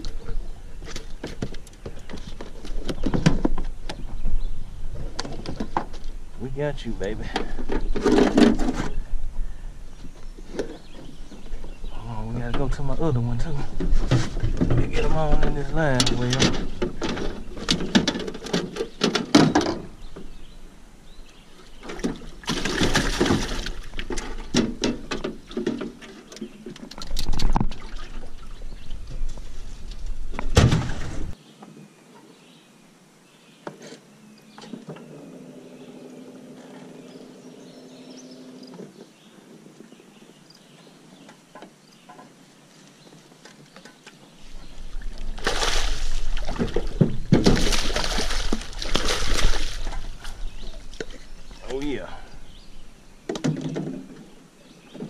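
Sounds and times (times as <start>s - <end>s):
gear clattering in metal boat: 13.7s - 19.9s
fish splashing at surface: 45.4s - 46.8s, 47.4s - 50.0s.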